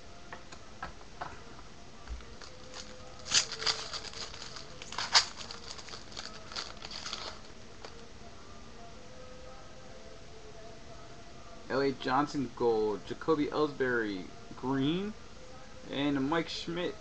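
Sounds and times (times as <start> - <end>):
foil wrapper crinkling: 2.2 - 8.0.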